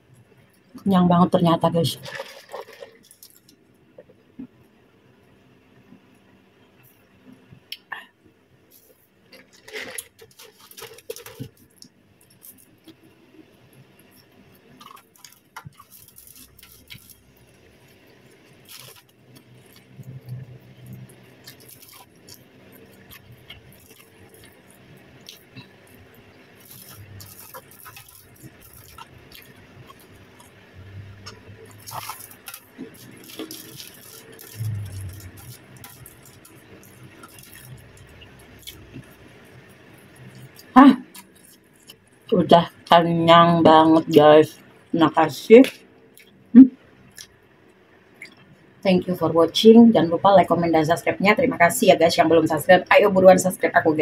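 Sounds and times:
aluminium foil crinkling: 0:01.9 - 0:03.6, 0:08.8 - 0:13.0, 0:14.0 - 0:20.1, 0:20.8 - 0:30.6, 0:31.6 - 0:42.0
soft chewing: 0:13.7 - 0:42.3.

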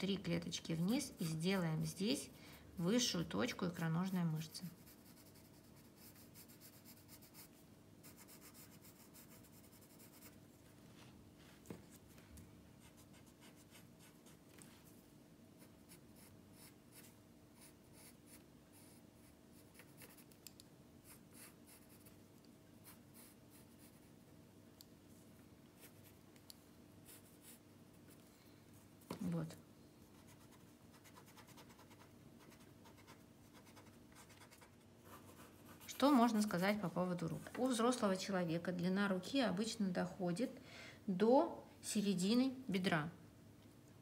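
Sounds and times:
pencil scratching on paper: 0:01.0 - 0:01.9, 0:04.6 - 0:10.4, 0:12.8 - 0:14.4, 0:15.6 - 0:20.4, 0:21.0 - 0:22.2, 0:22.8 - 0:24.2, 0:27.0 - 0:27.6, 0:30.2 - 0:36.8.

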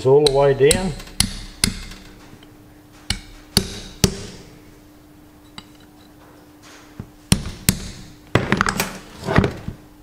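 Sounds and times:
hammer tapping steel pin: 0:00.2 - 0:02.2, 0:03.1 - 0:04.4.

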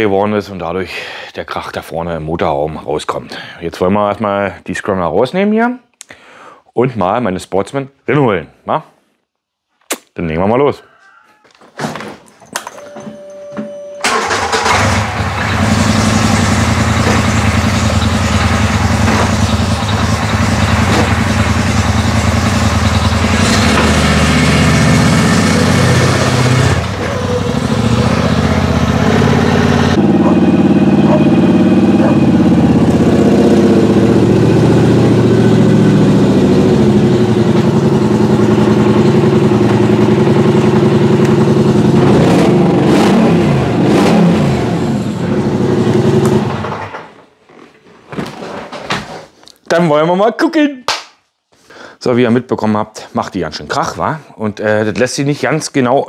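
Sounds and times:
exhaust racket: 0:14.0 - 0:46.8
atv engine running: 0:14.1 - 0:46.9.

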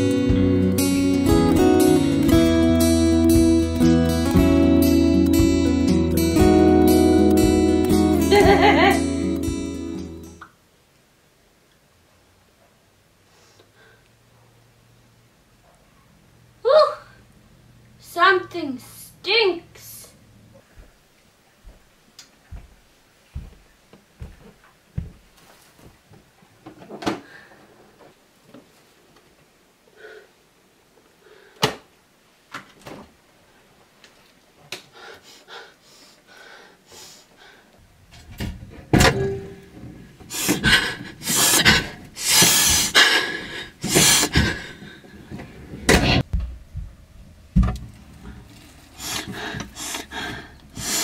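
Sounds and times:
refrigerator door opening: 0:38.3 - 0:39.6.

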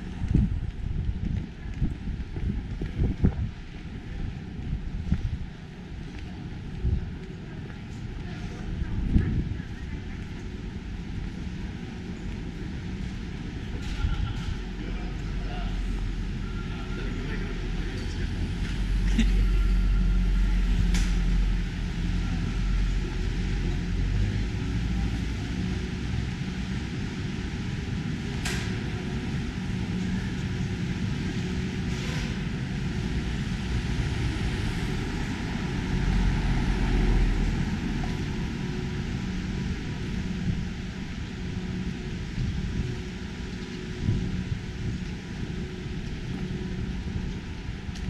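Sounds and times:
traffic rumble: 0:00.0 - 0:48.0.

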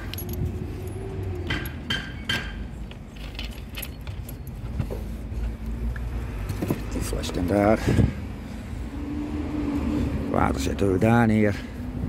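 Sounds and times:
metallic clinks and jangling: 0:00.0 - 0:04.8.

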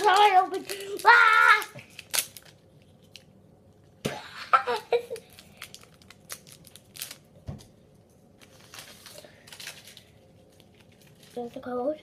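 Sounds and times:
foil wrapper crinkling: 0:00.0 - 0:03.3, 0:04.7 - 0:07.4, 0:08.4 - 0:11.8.

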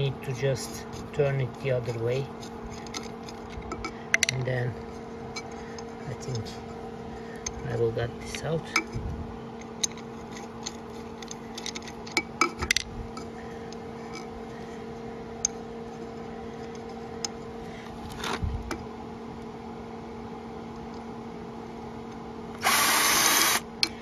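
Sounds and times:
steady low hum: 0:00.0 - 0:24.0
tools clicking and knocking: 0:01.8 - 0:04.4, 0:09.7 - 0:13.3
power drill running: 0:22.6 - 0:23.7.

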